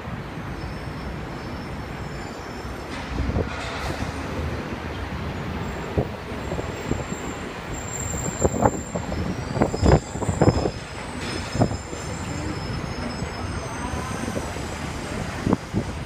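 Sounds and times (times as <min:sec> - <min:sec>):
elevated train rumbling: 0:00.0 - 0:16.0
wheels clacking over rail joints: 0:01.8 - 0:16.0.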